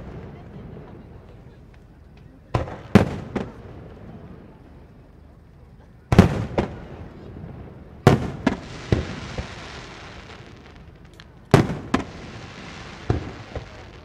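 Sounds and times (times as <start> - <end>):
firework shells bursting: 8.1 - 14.0
hissing crackle: 8.1 - 14.0.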